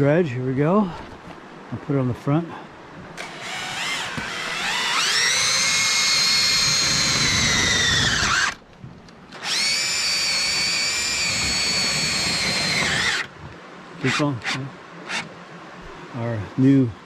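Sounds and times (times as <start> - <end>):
cordless drill whining: 3.2 - 8.6, 9.3 - 13.3, 14.0 - 15.3.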